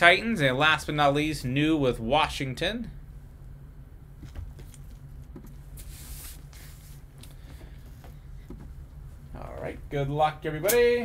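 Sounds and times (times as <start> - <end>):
faint low hum: 0.0 - 11.0
soft rustle: 4.2 - 9.4.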